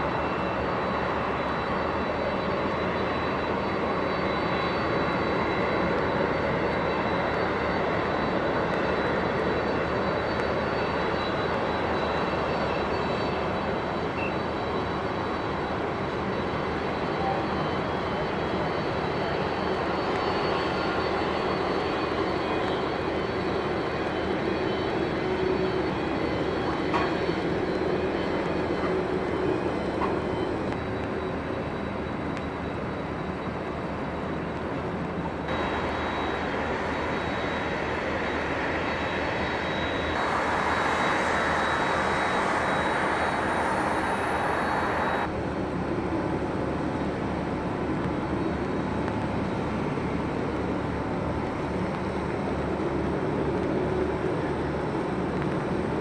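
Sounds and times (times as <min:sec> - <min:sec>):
faint high whistle: 0:00.0 - 0:34.6, 0:35.5 - 0:45.3
jet engines rumbling and whining: 0:00.0 - 0:56.0.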